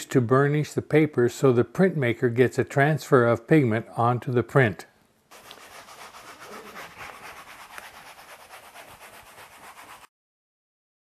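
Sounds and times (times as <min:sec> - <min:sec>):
baren rubbing on paper: 0:05.3 - 0:10.1.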